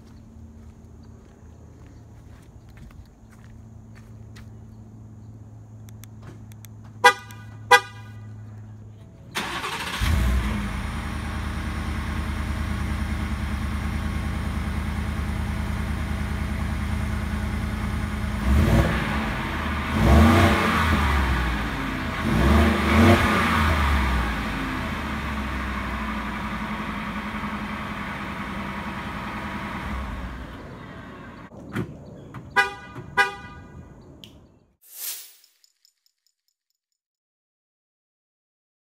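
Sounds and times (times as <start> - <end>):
car horn chirps: 6.9 - 8.6, 32.5 - 34.0
pickup engine starting and revving: 9.3 - 31.5.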